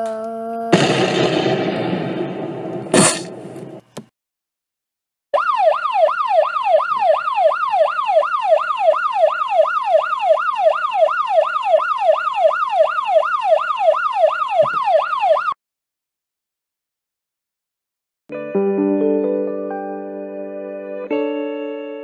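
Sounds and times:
electronic alarm siren wailing: 5.4s - 15.6s.

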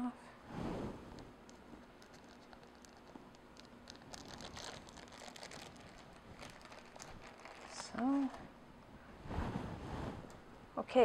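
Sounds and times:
parchment paper crinkling: 1.5s - 8.5s.

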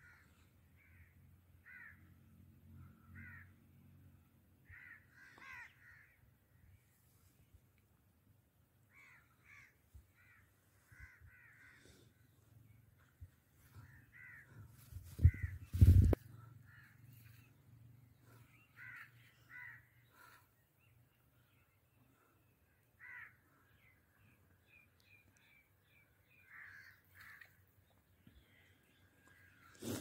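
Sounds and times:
birds calling: 4.7s - 6.3s, 8.9s - 30.0s.

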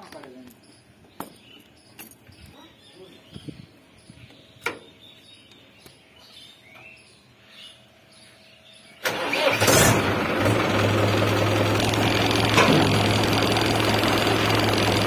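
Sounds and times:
faint bird chirps: 0.0s - 9.0s
tractor diesel engine starting and idling: 9.0s - 15.0s.

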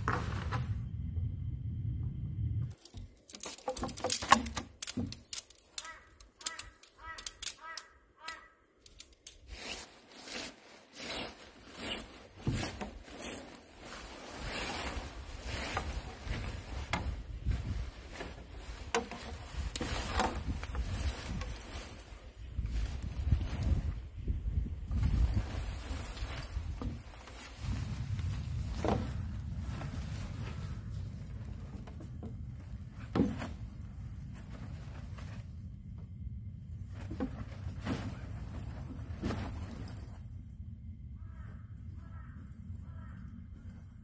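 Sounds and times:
sharp clicks and knocks: 2.7s - 9.4s
steady rustling: 8.8s - 40.6s.

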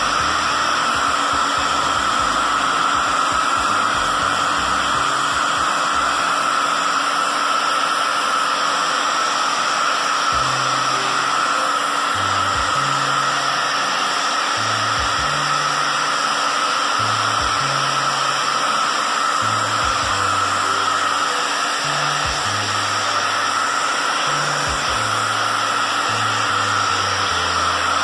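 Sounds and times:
hair dryer blowing: 0.0s - 28.0s.

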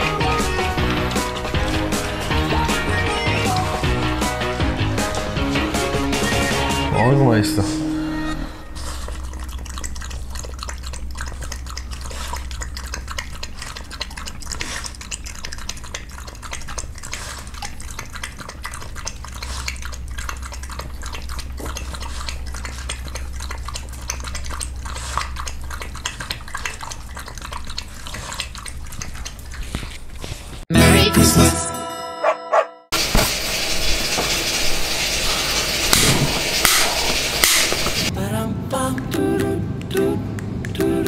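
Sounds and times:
dog lapping wet food: 0.0s - 5.8s, 8.8s - 30.7s
teeth clicking against bowl: 9.2s - 30.0s.

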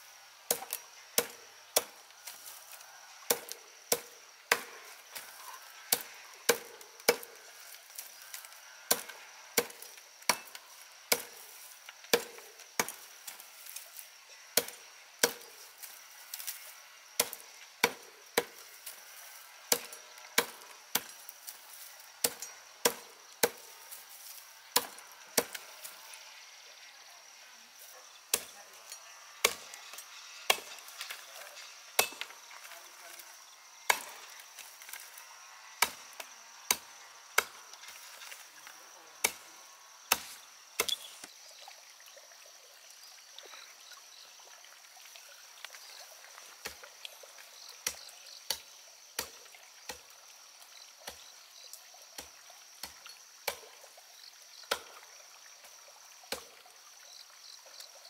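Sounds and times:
cleaver chopping plant stems: 0.5s - 13.8s, 14.6s - 16.6s, 17.2s - 21.6s, 22.2s - 25.9s, 28.3s - 33.3s, 33.9s - 35.2s, 35.8s - 38.2s, 39.2s - 39.5s, 40.1s - 41.3s, 49.2s - 50.0s, 52.2s - 53.7s, 54.7s - 55.0s.

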